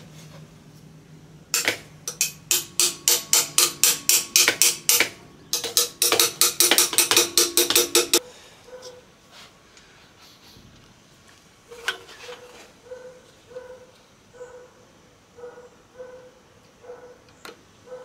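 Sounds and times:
hammer striking metal fan: 0:01.5 - 0:08.2.

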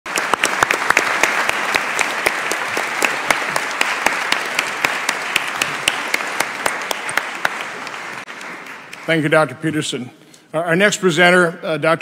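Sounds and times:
audience applauding: 0:00.1 - 0:09.6.

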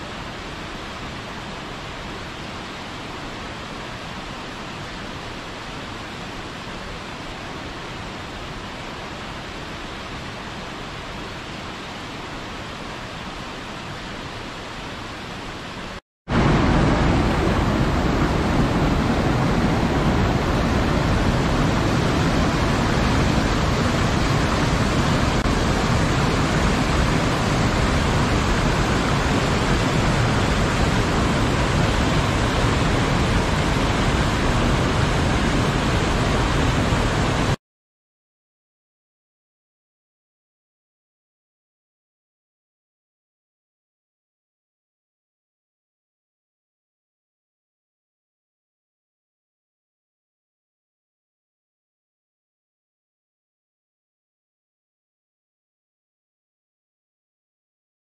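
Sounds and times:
waterfall rushing: 0:00.0 - 0:37.6.

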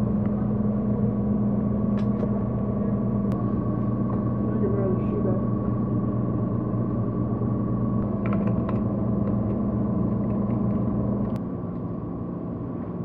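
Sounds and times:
vending machine electrical hum: 0:00.0 - 0:13.0.

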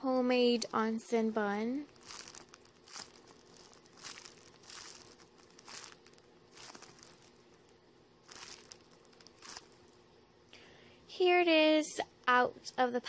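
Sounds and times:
plastic wrapping crinkling: 0:01.7 - 0:10.0.

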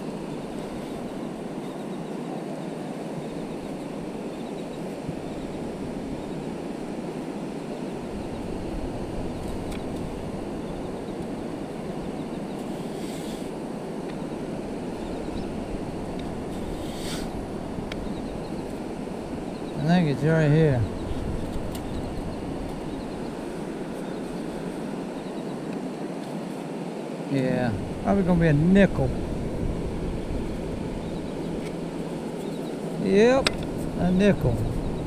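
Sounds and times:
ocean surf: 0:00.0 - 0:35.0
steady wind: 0:00.0 - 0:35.0
wind rumbling on microphone: 0:00.0 - 0:35.0
faint scrapes: 0:12.7 - 0:13.5, 0:16.5 - 0:17.4.

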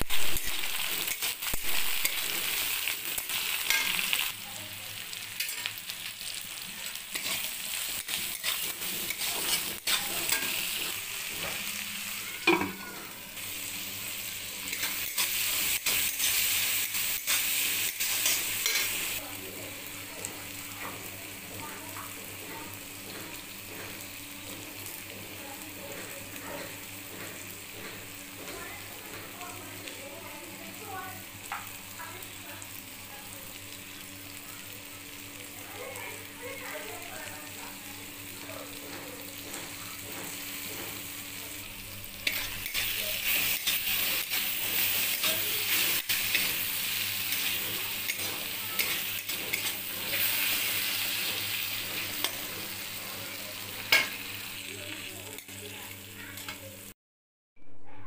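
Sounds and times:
food sizzling in a hot pan: 0:00.0 - 0:57.0
spatula scraping metal pan: 0:07.1 - 0:11.6.

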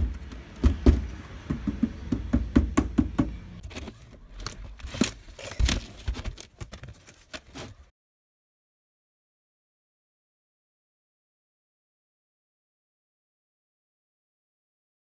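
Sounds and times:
hands handling tv parts knocking: 0:00.0 - 0:04.0.

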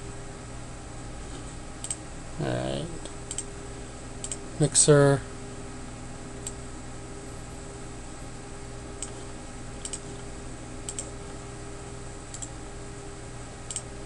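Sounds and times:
steady background hum: 0:00.0 - 0:14.0
computer mouse clicks: 0:01.8 - 0:02.0, 0:03.2 - 0:03.5, 0:04.2 - 0:04.4, 0:09.0 - 0:11.2, 0:12.3 - 0:12.6, 0:13.7 - 0:13.9.

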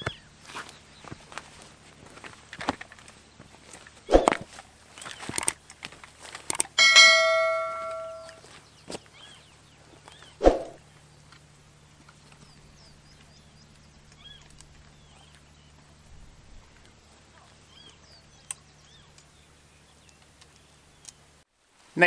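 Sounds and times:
bird chirps: 0:06.8 - 0:10.8.

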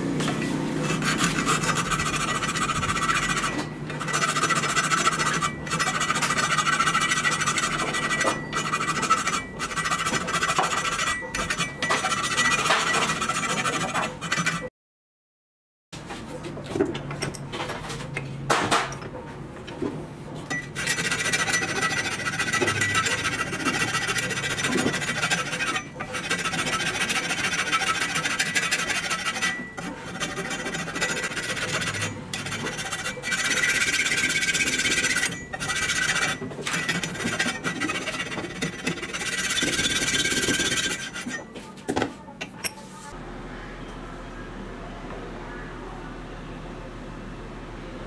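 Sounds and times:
hand file rasping on wood: 0:00.8 - 0:14.7, 0:20.8 - 0:41.5
thin high squeal: 0:00.9 - 0:14.7, 0:20.5 - 0:41.7.

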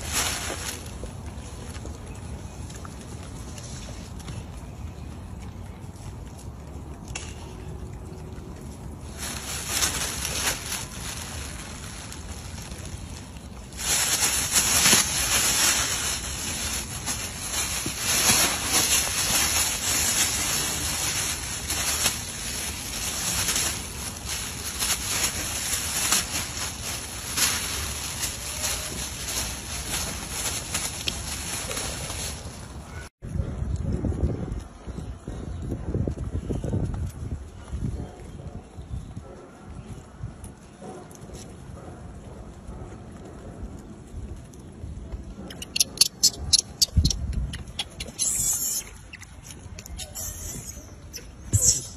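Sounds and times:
plastic bag crinkling: 0:09.0 - 0:32.8.

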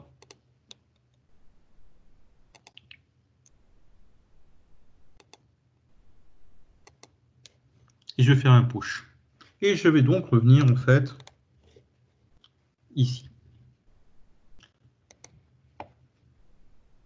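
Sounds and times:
mouse and keyboard clicks: 0:00.1 - 0:01.2, 0:02.5 - 0:03.0, 0:06.8 - 0:07.6, 0:11.2 - 0:11.4.

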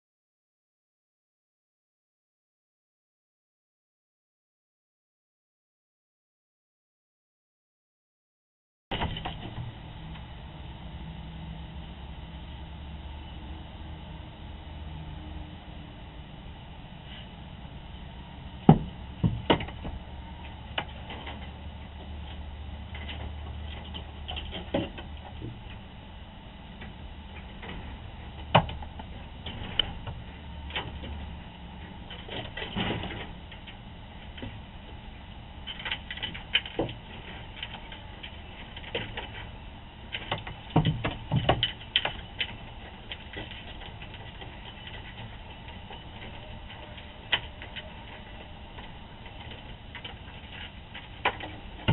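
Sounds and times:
animal knocking and scraping wood: 0:18.6 - 0:25.8, 0:26.8 - 0:34.6, 0:35.7 - 0:51.9.

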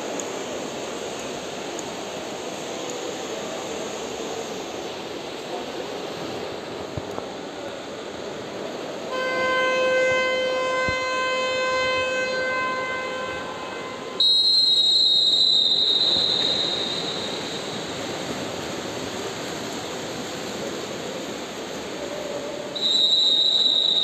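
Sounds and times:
echoing pool hall din: 0:00.0 - 0:24.0
long horn-like tone: 0:09.1 - 0:14.7
shrill whistle blast: 0:14.2 - 0:18.2, 0:22.8 - 0:24.0.

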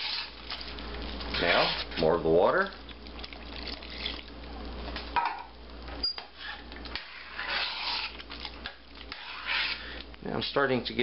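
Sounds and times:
spoon stirring and scraping pot: 0:00.0 - 0:02.2, 0:06.0 - 0:10.1
water pouring into a pot: 0:00.0 - 0:04.6.

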